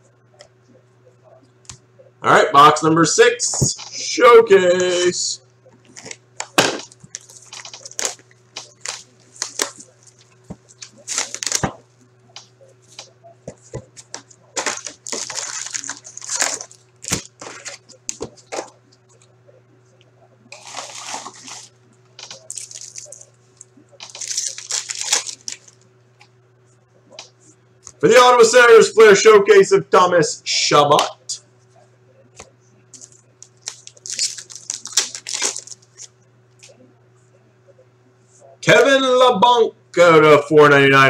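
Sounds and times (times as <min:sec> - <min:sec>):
card packs crinkling: 0:05.9 - 0:11.8, 0:12.9 - 0:18.7, 0:20.5 - 0:25.8, 0:33.0 - 0:36.1
wrappers tearing: 0:05.9 - 0:11.8, 0:14.0 - 0:18.2, 0:20.5 - 0:25.8, 0:33.0 - 0:36.1.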